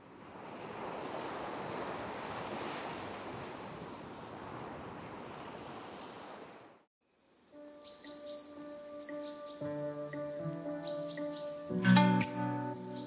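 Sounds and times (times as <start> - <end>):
small waves breaking on shore: 0.0 - 6.9.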